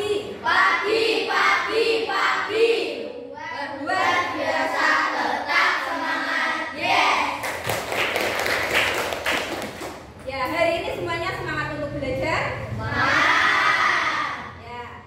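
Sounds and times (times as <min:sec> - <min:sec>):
group chanting: 0:00.0 - 0:07.4, 0:12.8 - 0:14.5
hand claps: 0:07.4 - 0:10.6.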